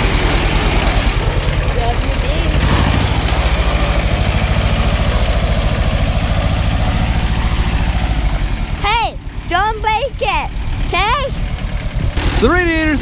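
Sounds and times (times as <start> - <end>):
tractor engine chugging: 0.0 - 13.0.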